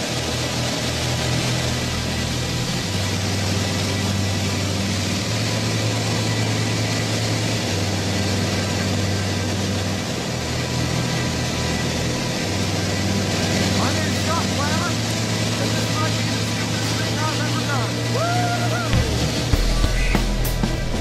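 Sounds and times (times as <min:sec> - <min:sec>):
plane engine noise: 0:00.0 - 0:21.0
low hum stepping in pitch: 0:17.8 - 0:21.0.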